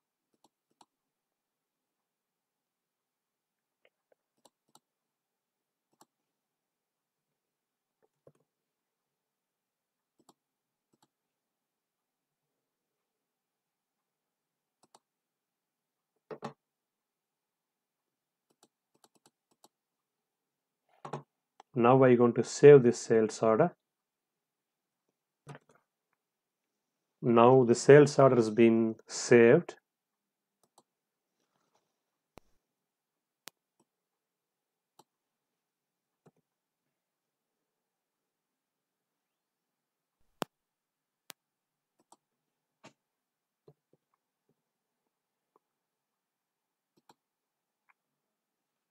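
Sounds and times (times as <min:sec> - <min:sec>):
computer mouse clicks: 0:00.3 - 0:01.0, 0:03.8 - 0:04.9, 0:10.2 - 0:11.2, 0:14.8 - 0:15.1, 0:18.5 - 0:19.8, 0:30.6 - 0:30.9, 0:42.0 - 0:43.0, 0:46.9 - 0:47.2
mouse and keyboard clicks: 0:18.5 - 0:19.8.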